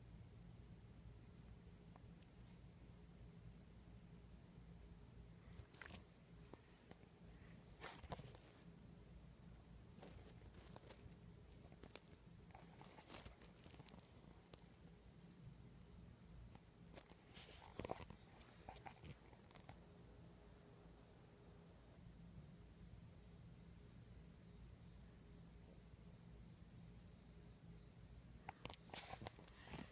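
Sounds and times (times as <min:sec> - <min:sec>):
crickets trilling: 0:00.0 - 0:29.9
soft clicks and rustles: 0:07.8 - 0:08.7, 0:09.9 - 0:14.7, 0:16.5 - 0:19.8, 0:28.5 - 0:29.9.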